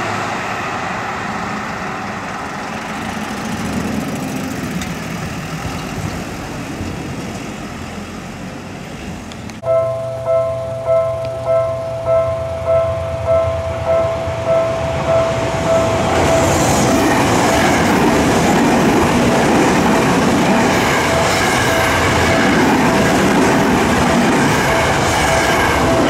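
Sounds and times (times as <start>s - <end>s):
train wheels and motors: 0.0s - 9.6s, 11.1s - 26.0s
crossing warning bell ringing: 9.6s - 26.0s.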